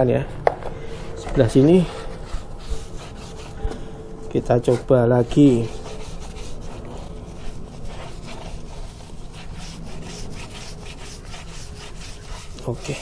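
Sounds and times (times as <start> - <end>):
sponge scrubbing rubber tyre: 4.5 - 13.0.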